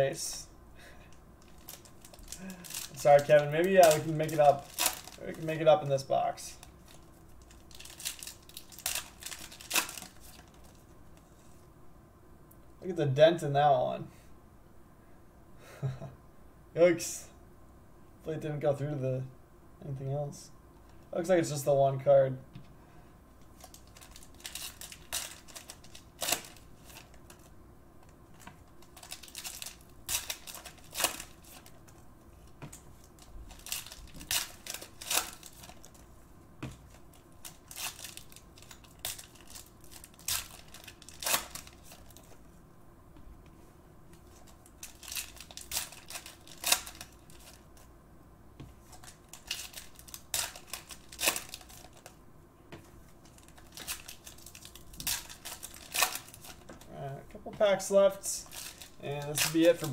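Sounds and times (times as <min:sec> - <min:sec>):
foil wrappers tearing and crinkling: 0:01.4 - 0:05.6, 0:06.6 - 0:10.8, 0:23.6 - 0:27.5, 0:28.8 - 0:31.9, 0:33.0 - 0:36.0, 0:36.8 - 0:42.4, 0:44.2 - 0:47.8, 0:48.8 - 0:52.2, 0:53.2 - 0:56.8, 0:58.4 - 0:59.9.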